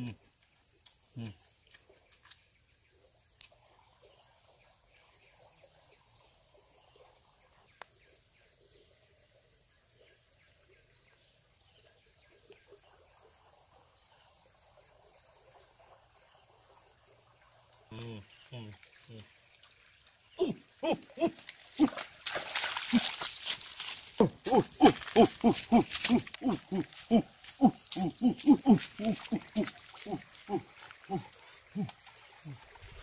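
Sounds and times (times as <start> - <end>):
insects droning: 0.0 - 33.0.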